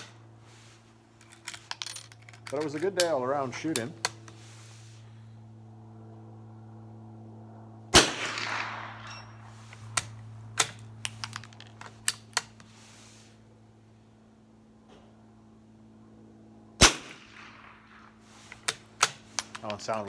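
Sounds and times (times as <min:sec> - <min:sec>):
rifle shot with echo: 0:07.9 - 0:09.4, 0:16.8 - 0:18.2.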